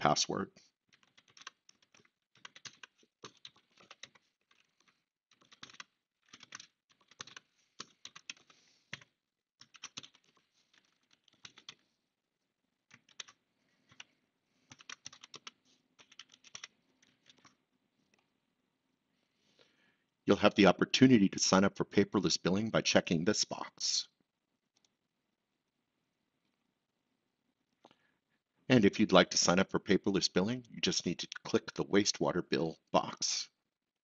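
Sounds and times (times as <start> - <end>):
computer keyboard typing: 0.9 - 11.8, 12.9 - 14.1, 14.7 - 17.6.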